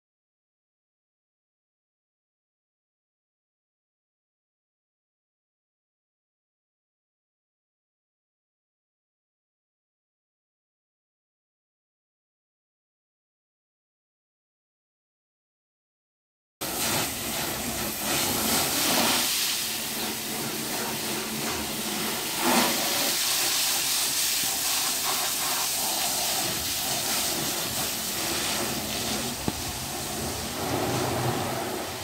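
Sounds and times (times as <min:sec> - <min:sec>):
water spraying from hose: 0:16.6 - 0:32.0.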